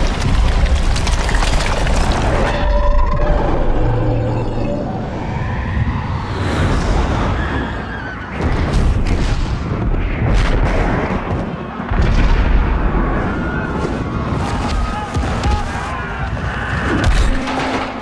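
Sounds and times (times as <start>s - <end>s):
explosions and gunfire: 8.2s - 18.0s.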